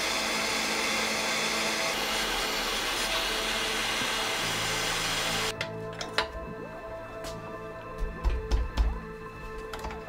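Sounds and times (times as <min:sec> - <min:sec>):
gas torch hissing: 0:01.8 - 0:05.5.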